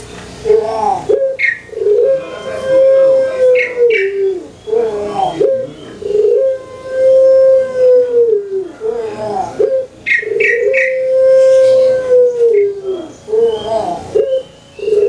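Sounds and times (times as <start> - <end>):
dove cooing: 0.4 - 15.0.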